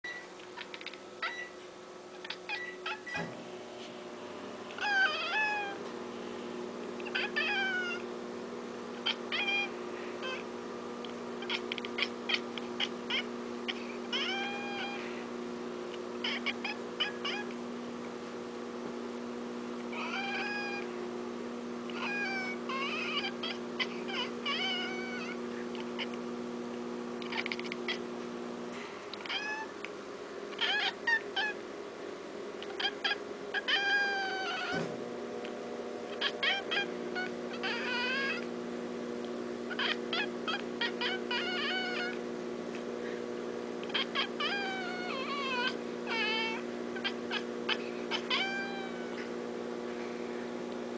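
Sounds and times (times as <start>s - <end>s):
cat chirping and meowing: 0.6s - 1.6s, 2.2s - 3.3s, 4.8s - 5.8s, 7.0s - 8.1s, 9.0s - 10.5s, 11.4s - 15.2s, 16.2s - 17.6s, 19.9s - 20.9s, 21.9s - 26.2s, 27.2s - 28.1s, 29.2s - 29.8s, 30.5s - 31.6s, 32.6s - 34.9s, 36.1s - 38.5s, 39.7s - 42.2s, 43.8s - 49.3s.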